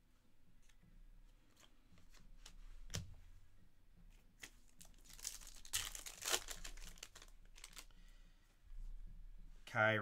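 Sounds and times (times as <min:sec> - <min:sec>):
wrapper tearing and crinkling: 0:04.8 - 0:07.9.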